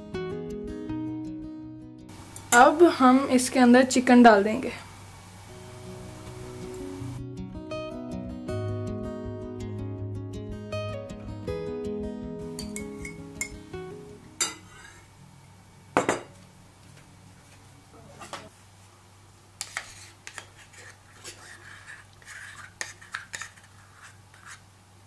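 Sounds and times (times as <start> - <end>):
utensils knocking on bowl: 12.6 - 13.6
wooden spoon scraping in bowl: 14.6 - 15.1, 19.6 - 24.6.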